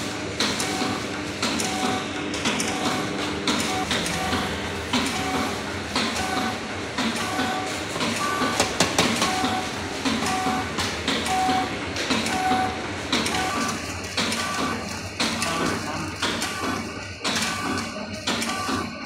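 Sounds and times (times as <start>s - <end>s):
packing machine clatter: 0.0s - 19.0s
sharp machine clicks: 0.4s - 19.0s.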